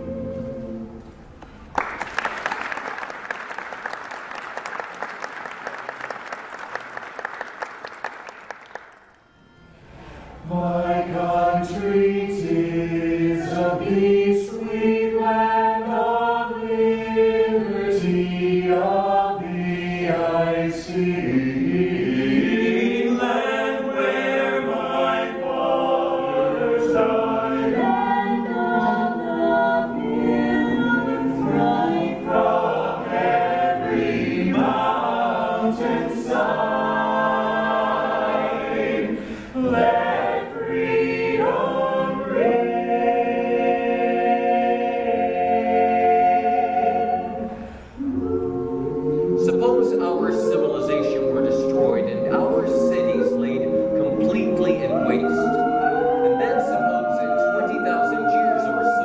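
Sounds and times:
a cappella choir singing: 0.0s - 1.4s, 9.9s - 59.0s
audience clapping: 1.4s - 9.3s.

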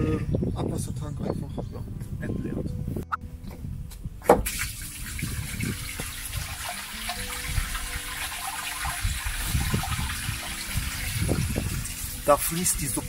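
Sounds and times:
water pouring into drain: 4.4s - 12.9s.

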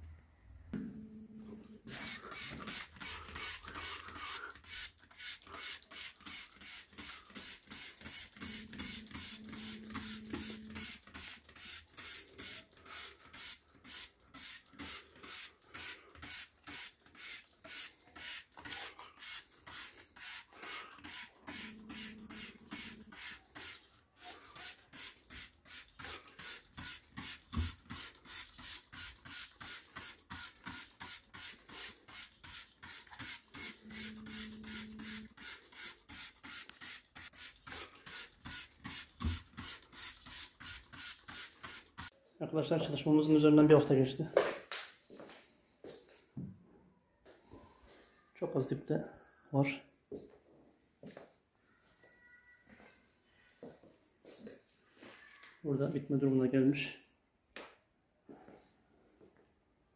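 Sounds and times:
spray bottle squirting: 1.9s - 42.1s.

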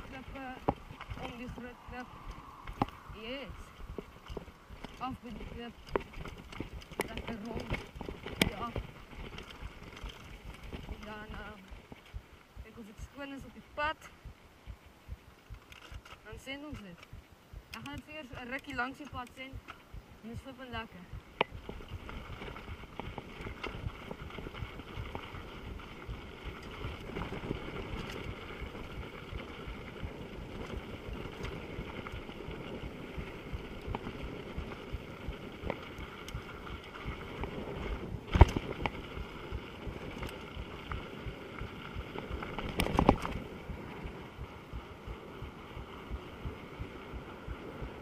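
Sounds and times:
bike tyre noise on road: 0.0s - 48.0s
wind rushing over microphone: 0.0s - 48.0s
small rattling clicks: 15.4s - 19.9s.

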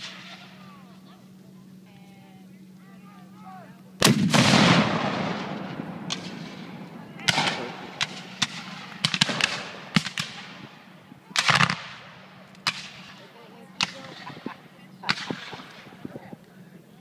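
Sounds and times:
musket shots cracking: 4.0s - 10.7s, 11.3s - 13.2s, 13.8s - 14.4s
cannon boom: 4.0s - 13.2s.

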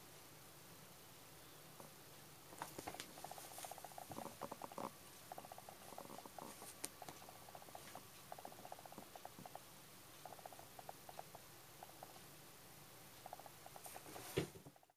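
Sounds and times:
soft scratching on fabric seat: 2.5s - 8.0s.

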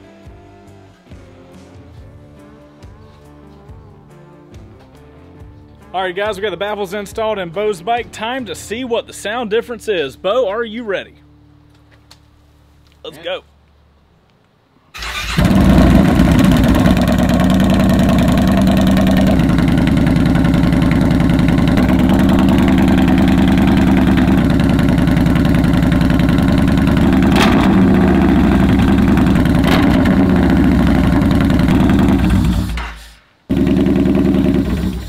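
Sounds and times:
motorcycle engine starting and idling: 15.0s - 35.0s.

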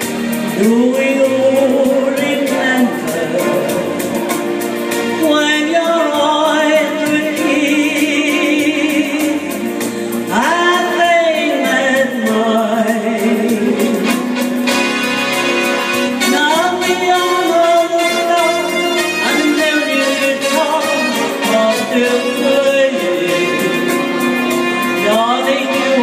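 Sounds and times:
backing music: 0.0s - 26.0s
woman singing through pa: 0.5s - 4.4s, 5.2s - 14.4s, 16.2s - 26.0s.

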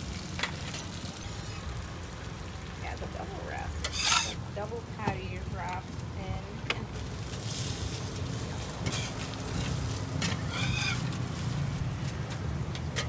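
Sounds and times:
food sizzling on griddle: 0.0s - 13.0s
metal spatula scraping and tapping: 3.8s - 4.4s, 8.8s - 11.2s.

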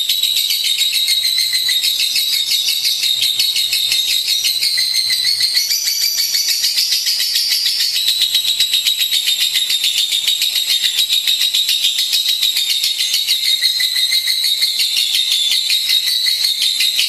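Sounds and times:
bird chattering song: 0.0s - 17.0s.

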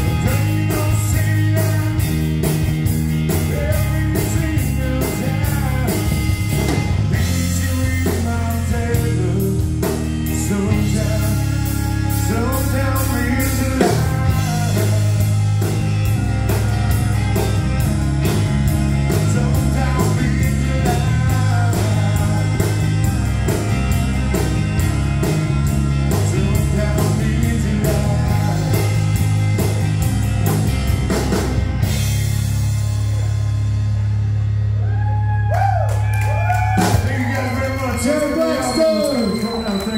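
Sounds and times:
drums driving beat: 0.0s - 39.9s
rock band playing loudly: 0.0s - 39.9s.

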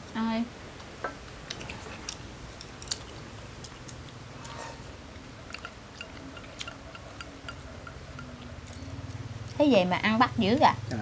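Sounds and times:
chewing: 1.4s - 9.6s
chopsticks clicking on ceramic bowls: 5.5s - 8.9s.

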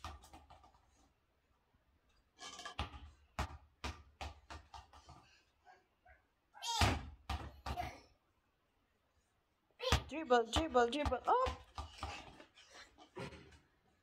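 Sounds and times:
ball bouncing on tile floor: 0.0s - 1.2s, 2.4s - 5.5s, 6.6s - 8.0s, 9.8s - 12.6s.

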